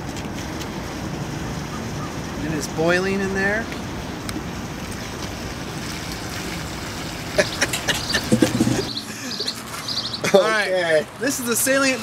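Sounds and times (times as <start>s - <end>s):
liquid nitrogen fizzing hiss: 4.9s - 12.0s
sharp clicks and knocks: 7.7s - 8.9s.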